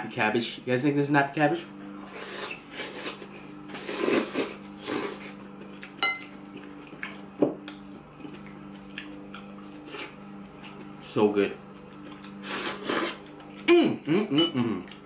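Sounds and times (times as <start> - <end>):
person slurping food: 2.0 - 5.5, 9.8 - 10.2, 12.3 - 13.3.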